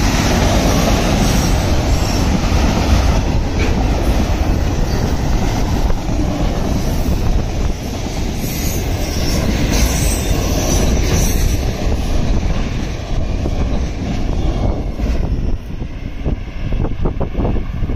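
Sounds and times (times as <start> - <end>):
freight train wheels rumbling: 0.0 - 17.9
high wheel squeal: 8.4 - 11.7.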